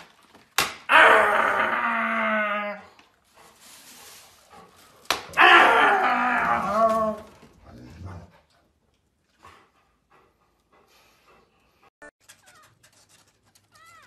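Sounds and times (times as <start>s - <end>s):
dog whining: 5.4s - 7.4s.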